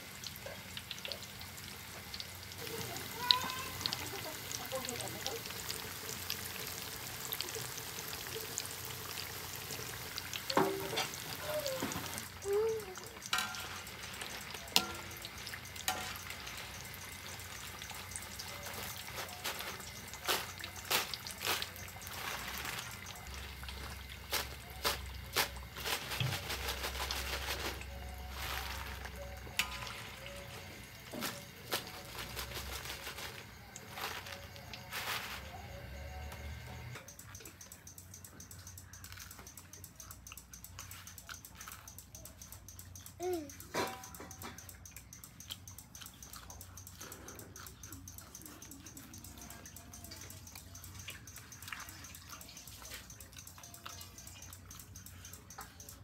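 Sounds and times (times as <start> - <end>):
food deep-frying in hot oil: 0.0 - 56.0
wire strainer knocking against wok: 13.1 - 17.2, 43.7 - 44.7.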